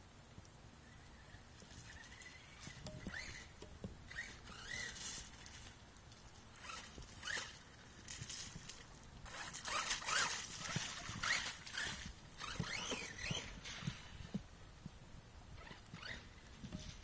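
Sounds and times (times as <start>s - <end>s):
tyres churning through mud: 6.5s - 14.2s.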